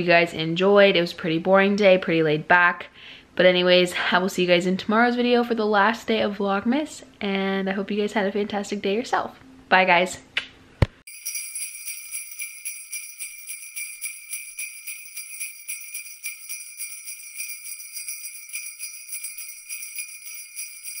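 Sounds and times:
sleigh bells jingling: 0:11.1 - 0:21.0.

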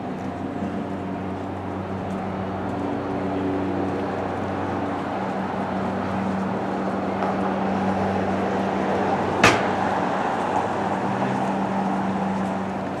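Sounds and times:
city street traffic: 0:00.0 - 0:13.0
engine hum: 0:00.0 - 0:13.0
sharp bang: 0:09.4 - 0:09.8.

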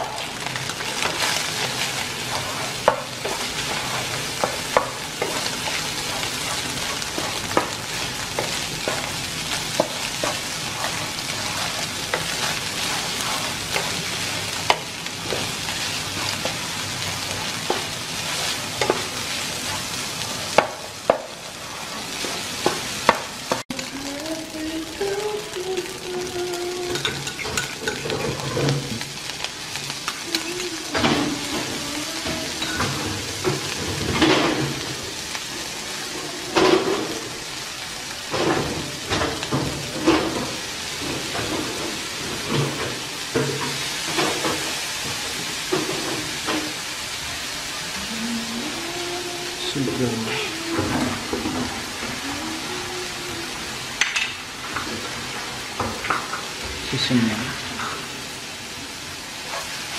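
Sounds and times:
rice sizzling in frying pan: 0:00.0 - 0:59.9
spatula scraping and tapping pan: 0:00.6 - 0:09.1.

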